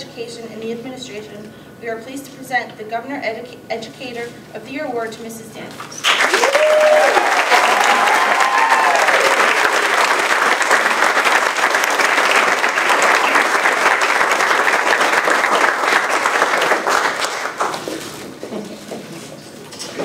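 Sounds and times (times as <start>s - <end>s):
audience applauding: 6.0s - 17.8s.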